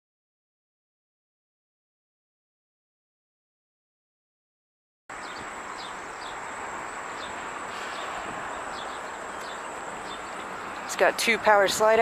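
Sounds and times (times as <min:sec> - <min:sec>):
bird chirps: 0:05.1 - 0:11.2
outdoor background noise: 0:05.1 - 0:12.0.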